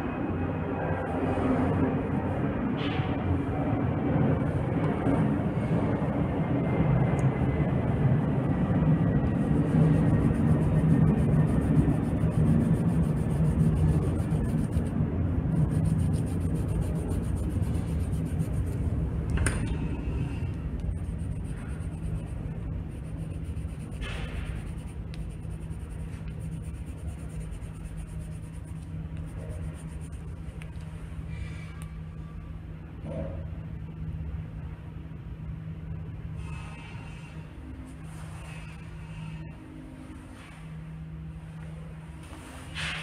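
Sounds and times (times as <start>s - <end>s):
steady low hum: 0.0s - 43.0s
pencil rubbing on paper: 9.3s - 14.9s, 15.5s - 18.9s, 20.9s - 30.5s.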